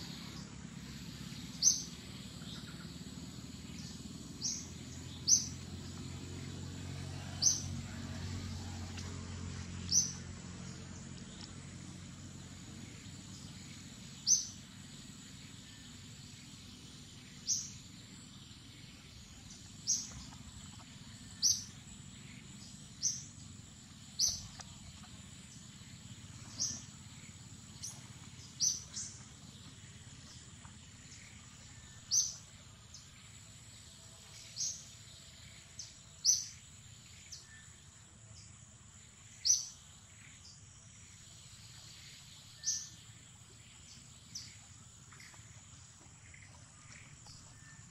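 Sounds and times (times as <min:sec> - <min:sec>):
low outdoor background noise: 0:00.0 - 0:47.9.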